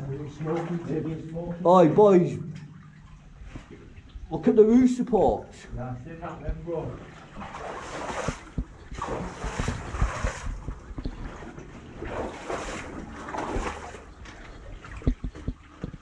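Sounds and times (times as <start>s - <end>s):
squelching steps through mud and water: 7.2s - 16.0s
waterproof clothing rubbing: 7.4s - 14.1s.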